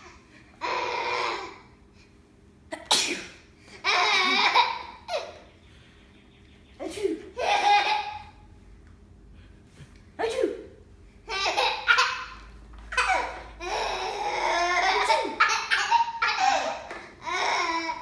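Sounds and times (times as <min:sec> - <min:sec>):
girl sneezing: 0:02.8 - 0:03.4
baby laughing: 0:03.8 - 0:05.5, 0:06.8 - 0:08.4, 0:11.3 - 0:18.0.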